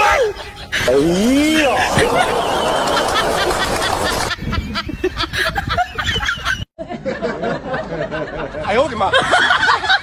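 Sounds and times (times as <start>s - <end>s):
people laughing: 0.2s - 10.0s.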